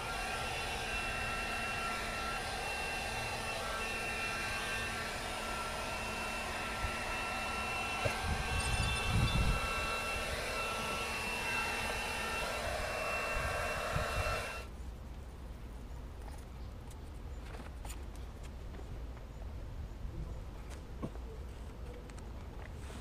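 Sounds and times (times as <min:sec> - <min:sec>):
hot-air blower whining: 0:00.0 - 0:14.7.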